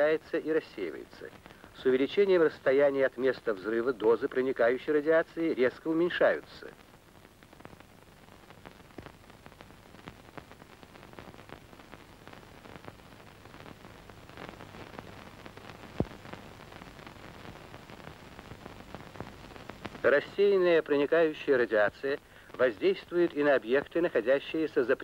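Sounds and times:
film soundtrack hiss and crackle: 0:00.0 - 0:25.0
small scattered clicks: 0:13.6 - 0:17.6.

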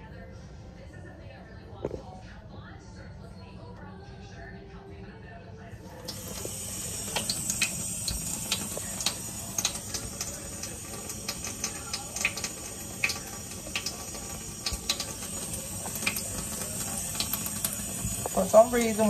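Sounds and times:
kitchen tap running: 0:05.9 - 0:19.0.

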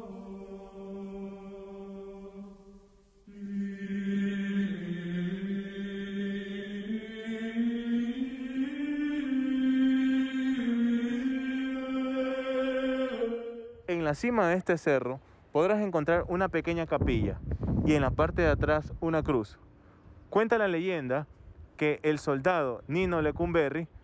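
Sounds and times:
slow sacred chant: 0:00.0 - 0:13.9.

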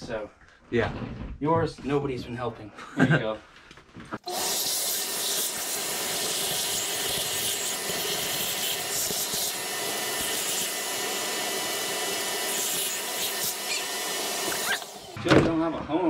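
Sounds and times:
shop vacuum running: 0:04.2 - 0:15.2.

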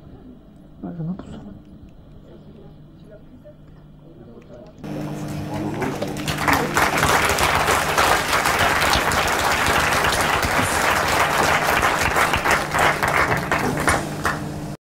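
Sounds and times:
audience applauding: 0:04.8 - 0:14.8.

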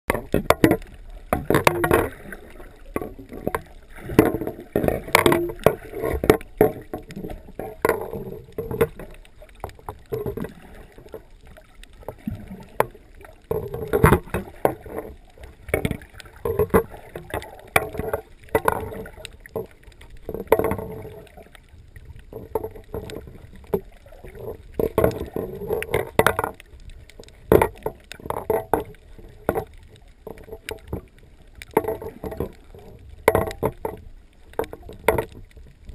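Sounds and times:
muffled water sloshing underwater: 0:00.0 - 0:35.9.

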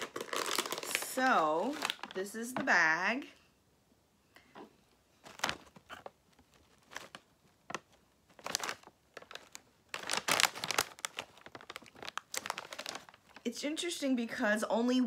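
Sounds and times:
plastic bag crinkling: 0:00.0 - 0:02.3, 0:05.2 - 0:13.6.

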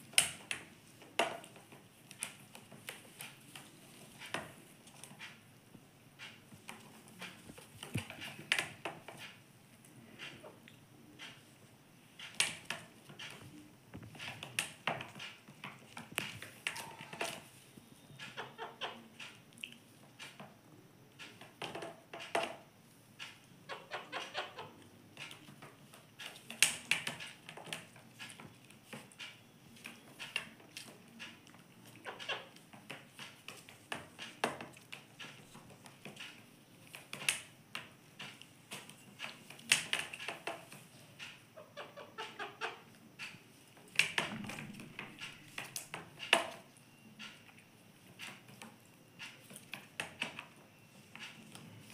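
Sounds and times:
soft parakeet calls: 0:18.1 - 0:19.1, 0:23.6 - 0:24.8, 0:41.6 - 0:42.9.

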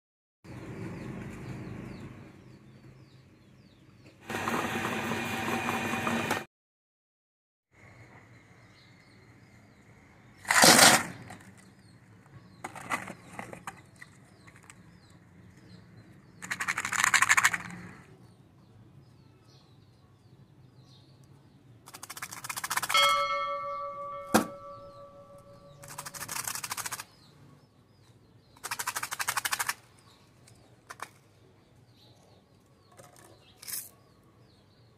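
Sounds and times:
faint birds chirping: 0:07.7 - 0:10.5, 0:11.1 - 0:22.4, 0:23.0 - 0:34.9
plastic cups rattling in a tub: 0:16.4 - 0:17.8.

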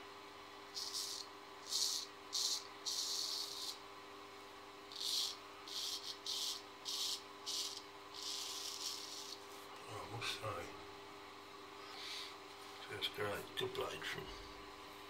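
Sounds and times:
razor scraping stubble: 0:04.9 - 0:09.5.

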